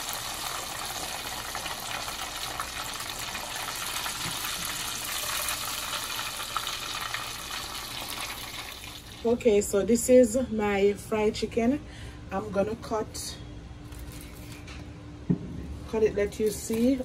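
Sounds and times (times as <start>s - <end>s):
hot oil sizzling and bubbling: 0.0s - 9.4s.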